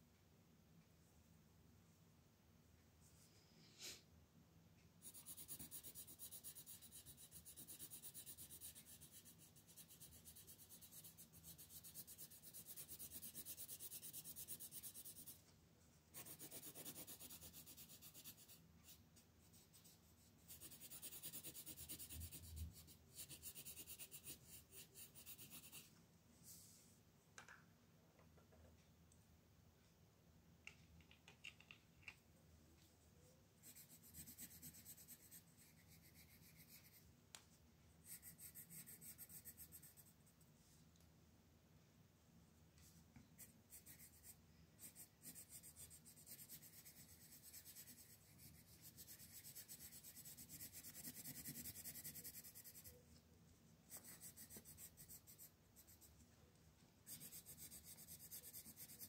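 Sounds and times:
pencil scratching on paper: 5.0 - 15.4, 16.1 - 25.9, 33.6 - 37.0, 38.0 - 40.2, 43.4 - 53.0, 53.9 - 56.1, 57.1 - 59.0.

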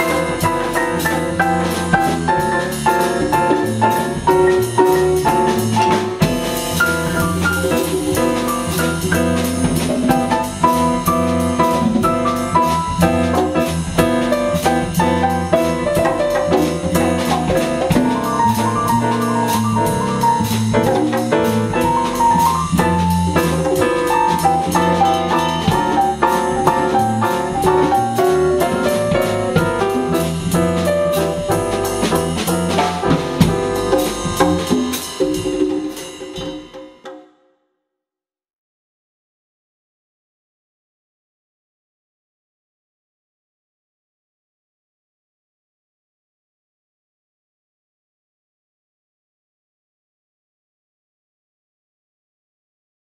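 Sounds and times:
walking bass: 0.0 - 35.7
grand piano playing jazz: 0.0 - 36.8
drum kit cymbals: 0.0 - 37.1.

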